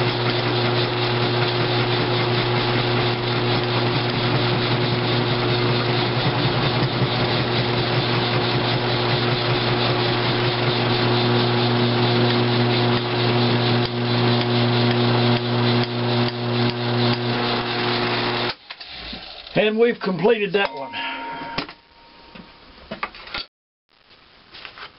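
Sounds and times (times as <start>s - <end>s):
gritty metal cutting rasp: 0.0s - 18.5s
mill motor hum: 0.0s - 19.6s.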